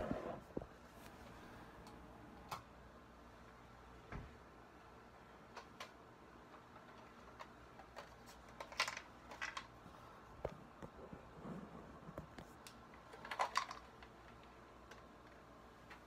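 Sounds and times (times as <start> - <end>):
handling clicks and rustles: 5.5 - 11.4, 12.0 - 16.0.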